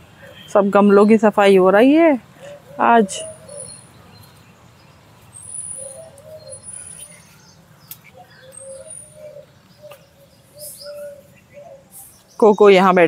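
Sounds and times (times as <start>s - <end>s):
bird cooing: 2.4s - 4.0s, 5.4s - 12.2s.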